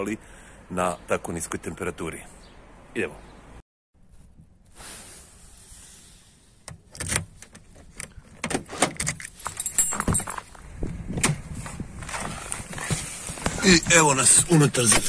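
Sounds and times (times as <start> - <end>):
key ring jangling: 9.3 - 10.5
footsteps on snow: 11.6 - 14.4.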